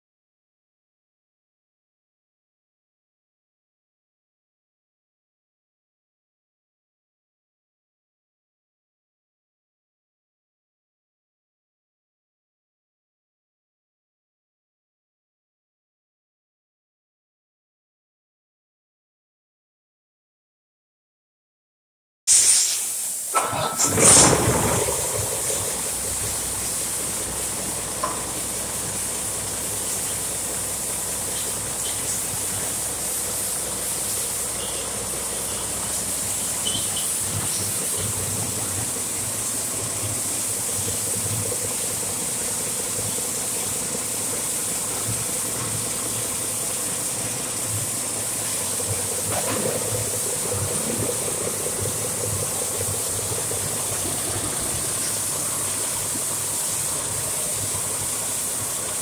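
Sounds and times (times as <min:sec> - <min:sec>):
high hiss: 0:22.3 - 0:38.0
diesel engine rumbling: 0:23.4 - 0:59.0.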